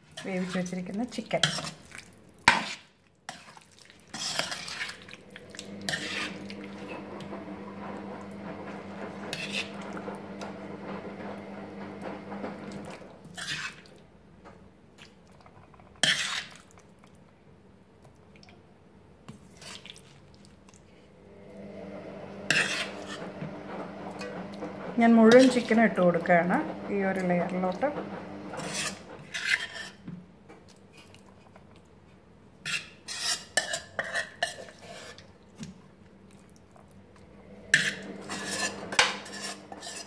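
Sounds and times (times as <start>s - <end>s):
metal spoon scraping steel pot: 4.1s - 7.0s, 9.2s - 10.0s, 13.2s - 13.9s, 16.0s - 16.6s, 22.5s - 23.4s, 28.6s - 30.0s, 32.7s - 35.2s, 37.7s - 40.0s.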